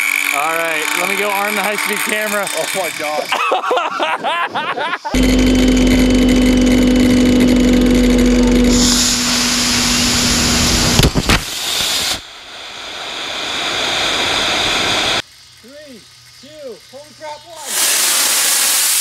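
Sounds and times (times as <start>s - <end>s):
circular saw motor whining: 0.0s - 3.8s, 5.1s - 11.8s
rocket motors hissing: 5.2s - 19.0s.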